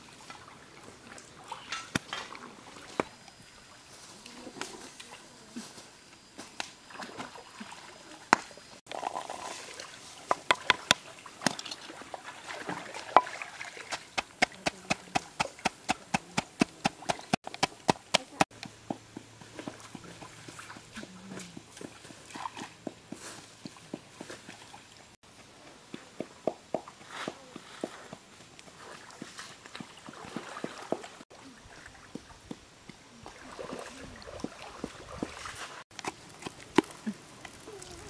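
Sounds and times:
wooden pestle pounding in mortar: 14.1 - 18.5.

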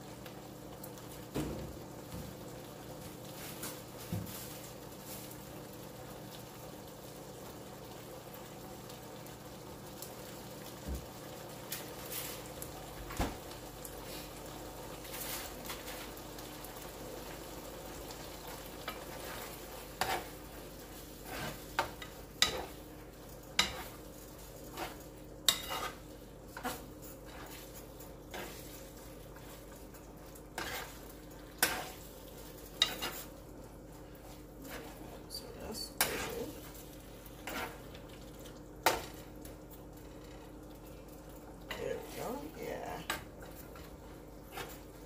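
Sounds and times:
meat sizzling: 0.0 - 45.0
spoon scraping a pan: 18.8 - 20.5, 21.2 - 22.8, 23.6 - 24.0, 24.6 - 29.7, 30.5 - 33.4, 35.8 - 37.9, 43.0 - 44.9.

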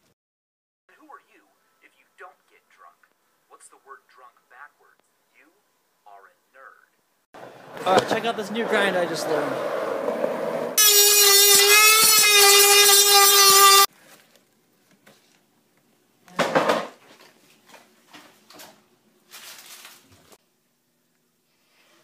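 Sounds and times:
rotary tool grinding metal: 10.8 - 13.9.

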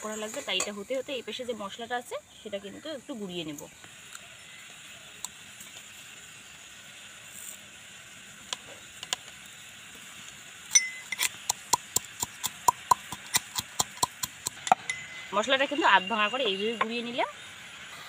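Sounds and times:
spices clinking into metal mortar: 10.7 - 17.0
metal pestle pounding: 10.8 - 15.0.

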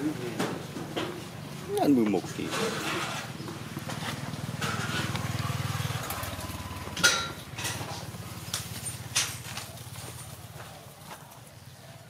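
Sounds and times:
motor engine running: 2.3 - 10.8.

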